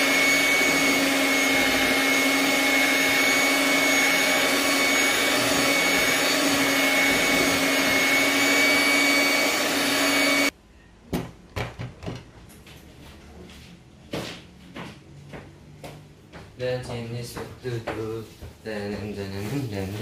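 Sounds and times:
electric mixer motor running: 0.0 - 10.5.

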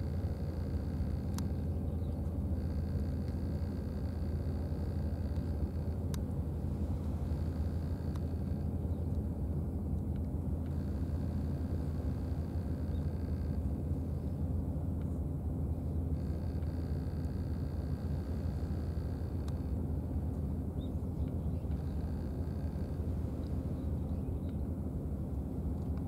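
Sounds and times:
faint clicks: 1.1 - 2.4, 7.8 - 9.2, 19.2 - 19.7, 21.2 - 22.4, 24.4 - 24.6.

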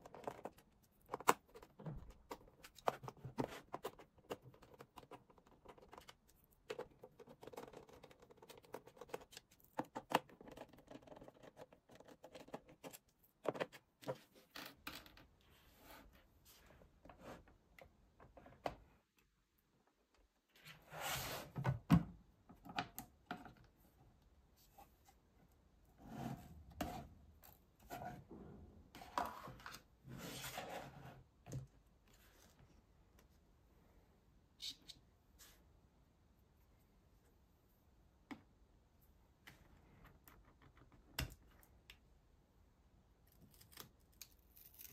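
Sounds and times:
plastic parts clicking and tapping: 0.0 - 14.2.

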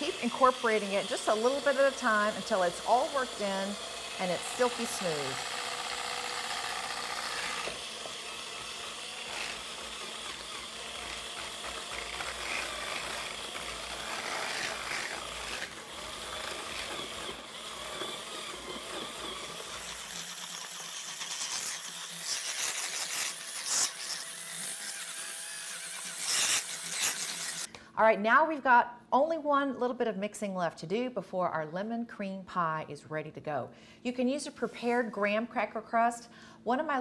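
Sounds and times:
hand mixer running: 0.0 - 27.7.

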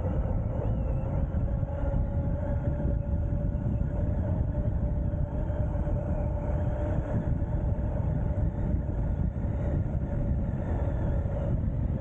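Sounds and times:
road noise: 0.0 - 12.0
thin steady whine: 0.0 - 12.0
wind rushing over microphone: 0.0 - 12.0.

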